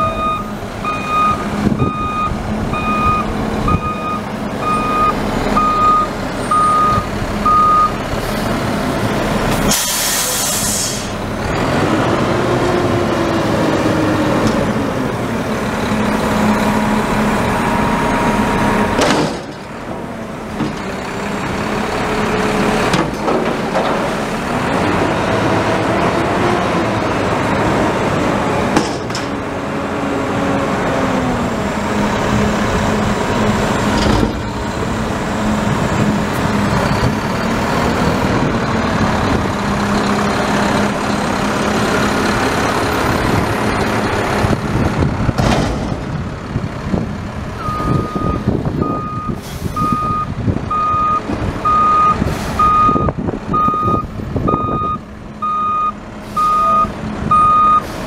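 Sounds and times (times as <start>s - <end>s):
garbage truck engine running: 0.0s - 58.0s
metal bangs: 18.9s - 20.9s.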